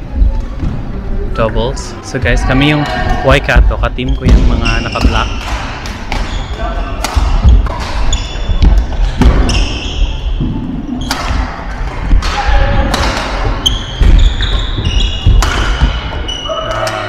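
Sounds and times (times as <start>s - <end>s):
shoes squeaking on wooden floor: 4.0s - 12.0s, 13.3s - 16.7s
racket striking shuttlecock: 7.0s - 9.7s, 11.0s - 14.3s, 14.9s - 16.2s.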